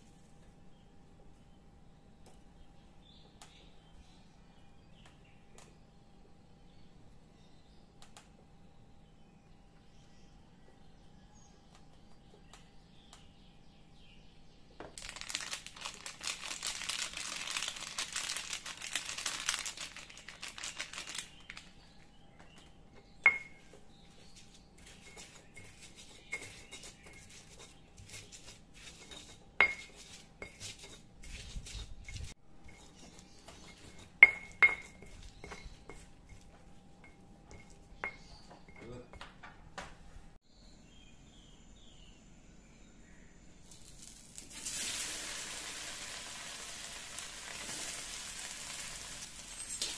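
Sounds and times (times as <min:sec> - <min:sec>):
frying hiss: 0:43.6 - 0:49.9.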